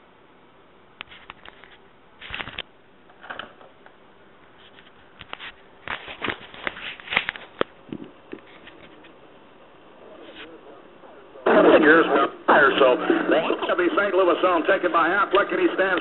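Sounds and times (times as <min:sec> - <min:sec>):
faint radio hiss: 0:00.0 - 0:16.0
clicks and crackles: 0:01.0 - 0:04.0, 0:04.6 - 0:09.2.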